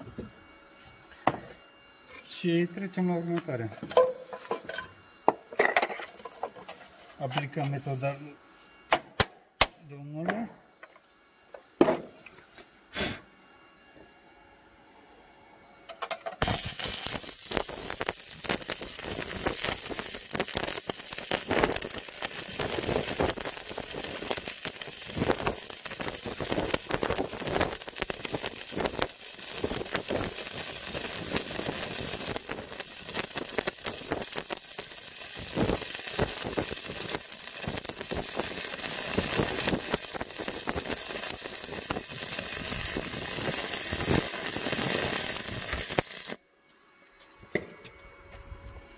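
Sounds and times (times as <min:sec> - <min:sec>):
welding arc crackling and sizzling: 0:15.9 - 0:46.4.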